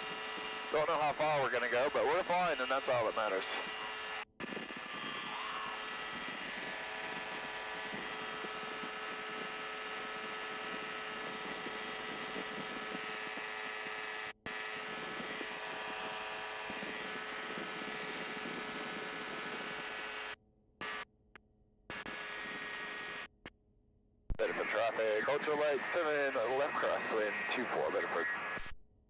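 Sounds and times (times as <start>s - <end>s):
ultralight aircraft engine humming: 0.0s - 20.3s.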